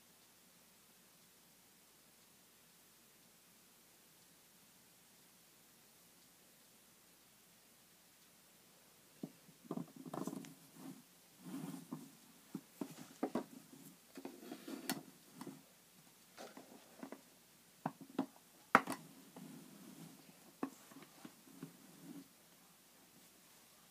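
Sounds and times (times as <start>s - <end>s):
plastic trays handled on table: 9.7s - 15.6s.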